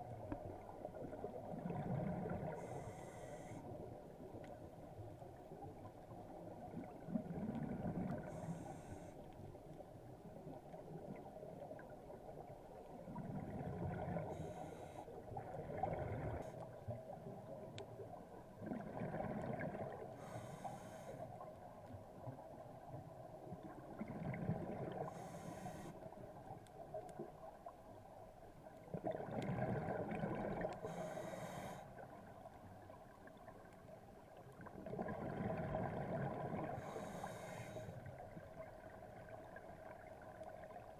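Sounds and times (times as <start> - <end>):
regulator hiss on inhale: 2.5 - 3.8, 8.2 - 9.4, 14.2 - 15.2, 20.1 - 21.5, 25.0 - 26.2, 30.8 - 32.1, 36.7 - 38.2.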